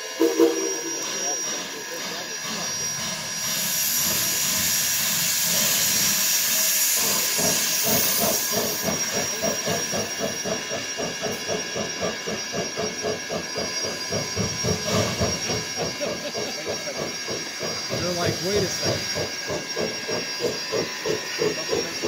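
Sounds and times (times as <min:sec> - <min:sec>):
steam hissing: 0:00.0 - 0:22.0
steam locomotive exhaust chuffs: 0:00.0 - 0:22.0.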